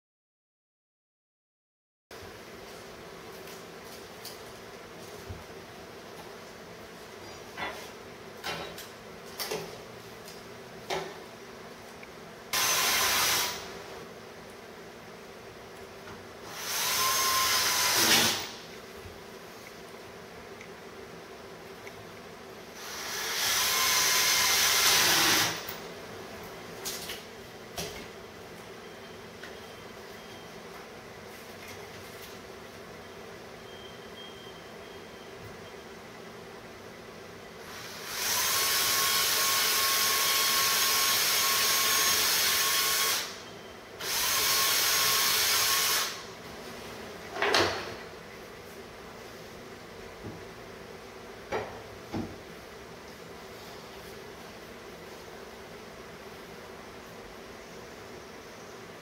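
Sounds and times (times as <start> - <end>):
power drill boring into wood: 12.6 - 13.7, 16.5 - 18.5, 22.8 - 25.7, 37.8 - 43.4, 44.0 - 46.2.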